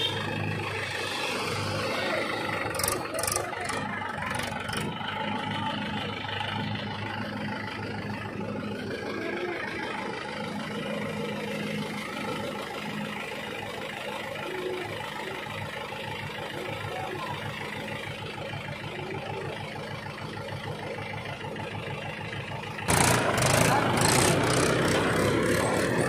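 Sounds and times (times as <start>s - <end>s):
tractor diesel engine idling: 0.0s - 26.0s.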